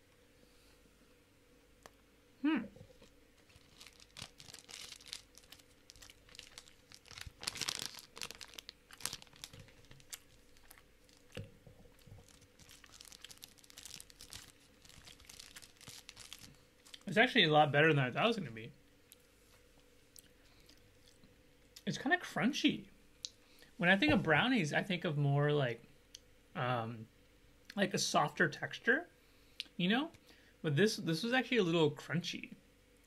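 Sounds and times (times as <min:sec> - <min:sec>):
short falling vocal hum: 0:02.4 - 0:02.8
wrapper crinkling and tearing: 0:03.0 - 0:17.2.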